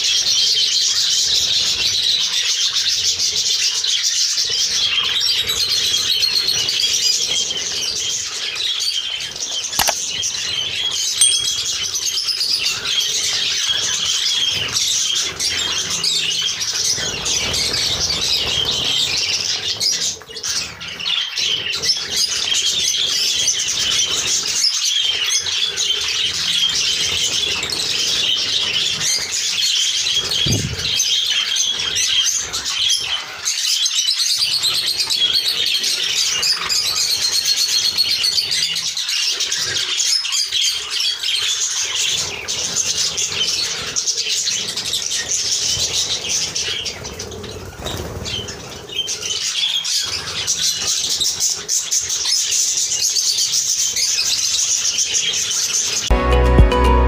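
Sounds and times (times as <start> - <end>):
wings flapping: 30.2 - 31.1, 45.6 - 49.3.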